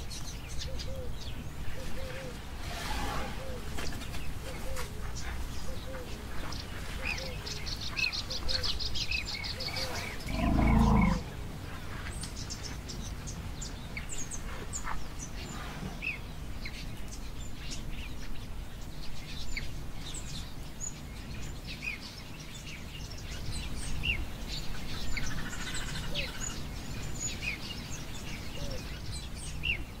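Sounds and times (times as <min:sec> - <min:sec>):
birds chirping and whistling: 0:08.1 - 0:11.3.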